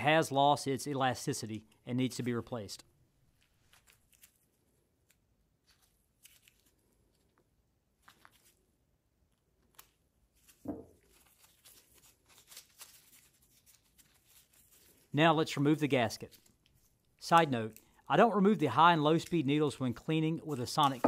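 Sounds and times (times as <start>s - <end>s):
scratchy handling noises: 3.3s - 8.6s, 9.3s - 15.1s
soft knock: 10.7s - 11.0s.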